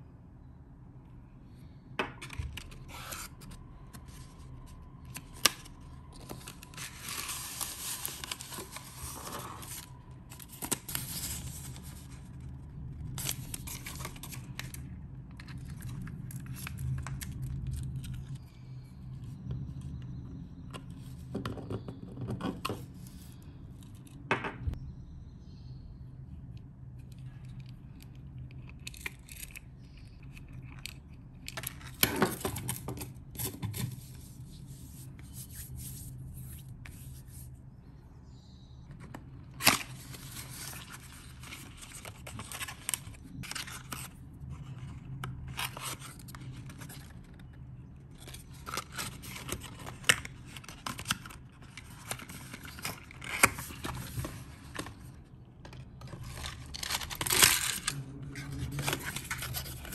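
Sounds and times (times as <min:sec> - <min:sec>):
packaging rustling and crinkling: 0:05.1 - 0:12.2, 0:48.2 - 0:59.9.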